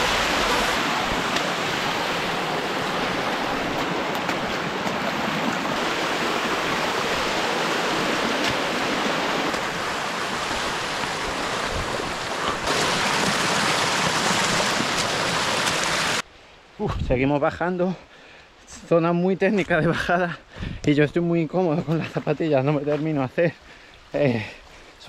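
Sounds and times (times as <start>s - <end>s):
stream water rushing: 0.0s - 16.7s.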